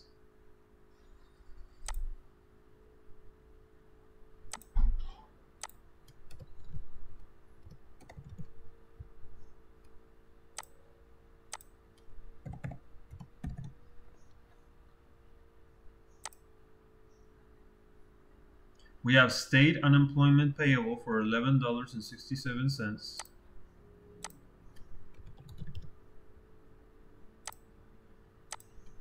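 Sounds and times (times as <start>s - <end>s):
steady low hum: 0.0s - 29.0s
computer mouse clicks: 1.6s - 2.2s, 4.5s - 4.8s, 5.6s - 6.9s, 7.6s - 9.1s, 9.8s - 10.8s, 11.5s - 14.4s, 16.1s - 16.4s, 24.2s - 26.0s, 27.4s - 27.7s, 28.5s - 29.0s
keyboard typing: 1.7s - 2.1s, 5.6s - 6.9s, 7.6s - 8.6s, 11.5s - 13.9s, 16.2s - 16.4s, 24.2s - 25.9s, 28.5s - 29.0s.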